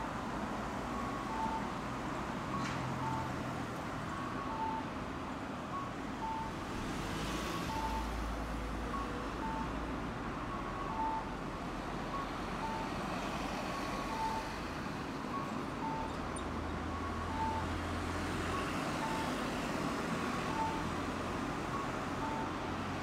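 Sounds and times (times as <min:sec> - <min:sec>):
street traffic: 0:00.0 - 0:23.0
electronic two-tone beeping: 0:14.0 - 0:14.5, 0:15.3 - 0:17.7.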